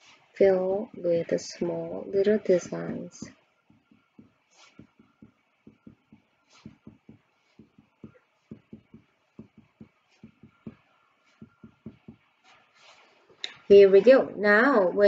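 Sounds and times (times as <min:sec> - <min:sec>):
pencil marking on paper: 0:03.7 - 0:13.2.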